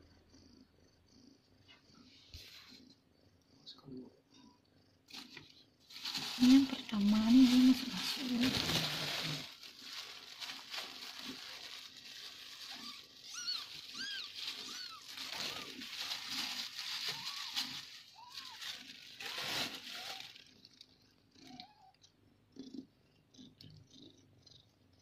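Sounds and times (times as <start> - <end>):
wet licking and rustling: 6.1 - 20.9
newborn kittens mewing: 6.6 - 20.5, 21.3 - 24.3.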